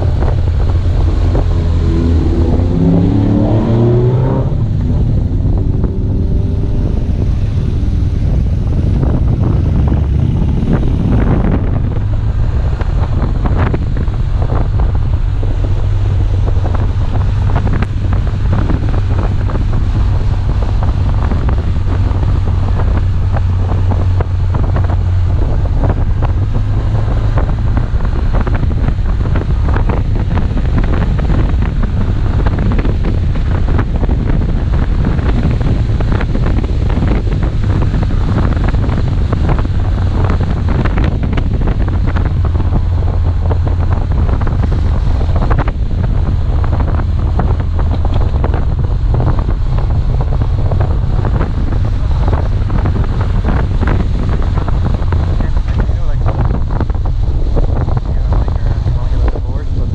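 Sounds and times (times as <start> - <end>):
motorcycle passing: 0.0 - 12.2
motorcycle engine running: 0.0 - 59.9
wind buffeting microphone: 0.0 - 59.9.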